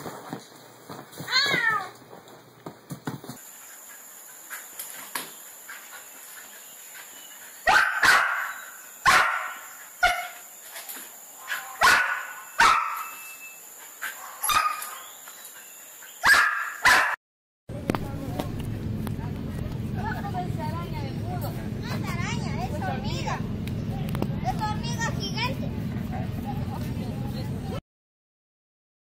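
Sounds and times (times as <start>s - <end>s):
dog barking: 7.7s - 10.4s, 11.4s - 13.2s, 14.1s - 15.1s, 16.2s - 17.2s.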